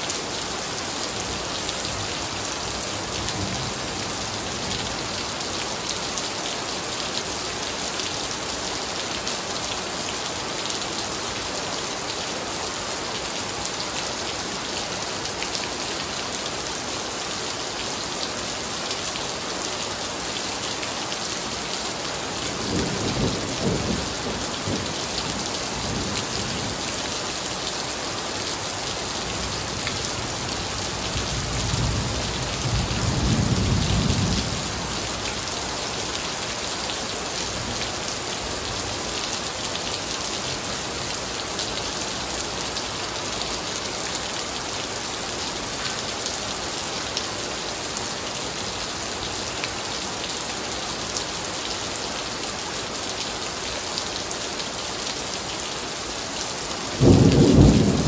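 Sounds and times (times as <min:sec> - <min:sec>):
heavy rain on tiles and foliage: 0:00.0 - 0:58.0
low rumble of thunder: 0:57.0 - 0:58.0.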